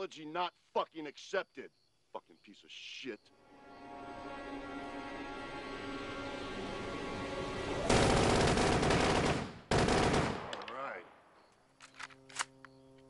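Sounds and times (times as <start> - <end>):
film score: 0.0 - 13.0
machine-gun fire: 7.8 - 10.7.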